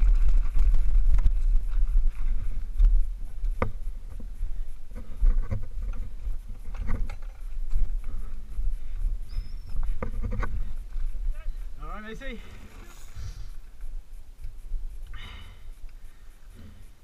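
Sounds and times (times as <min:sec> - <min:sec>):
tyres rolling over loose stones: 0:00.0 - 0:02.4
wind rumbling on microphone: 0:00.0 - 0:17.0.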